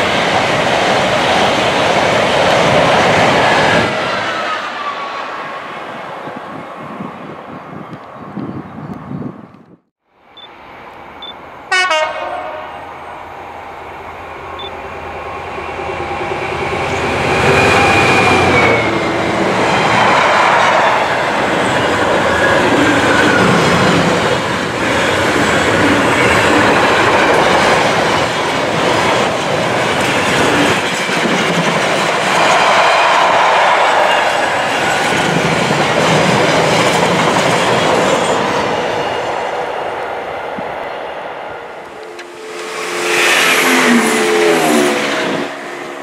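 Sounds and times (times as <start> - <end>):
freight train wagons on rails: 0.0 - 9.1, 10.2 - 46.0
train horn blast: 11.7 - 13.0, 41.8 - 46.0.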